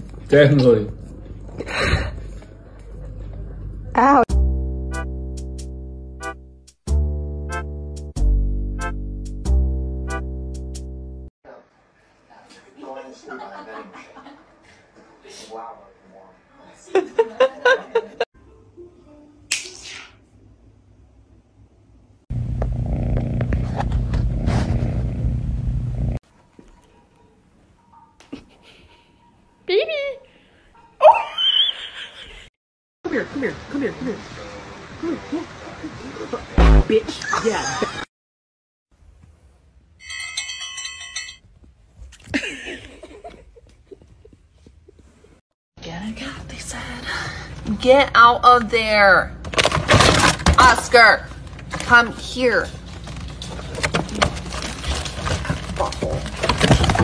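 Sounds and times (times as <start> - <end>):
people laughing: 12.8 - 14.8, 16.8 - 18.3, 37.1 - 38.1, 42.3 - 44.3
cat purring: 22.6 - 25.3.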